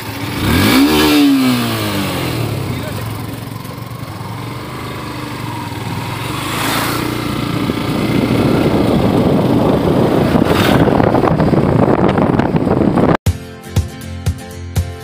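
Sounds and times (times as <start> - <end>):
motorcycle engine: 0.0 - 13.2
dense rushing noise: 4.9 - 13.2.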